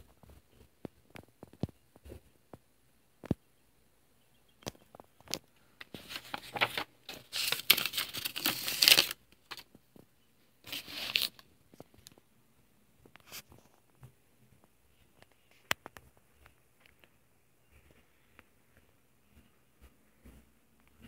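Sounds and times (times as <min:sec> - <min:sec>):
pages turning with paper rustling: 0:04.9 - 0:09.8, 0:10.6 - 0:12.2.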